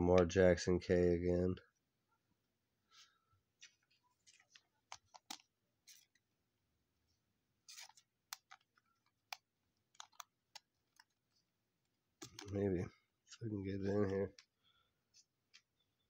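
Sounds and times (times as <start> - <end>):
card and plastic sleeve crinkling: 3.6 - 6.3, 7.6 - 11.5, 12.2 - 12.7.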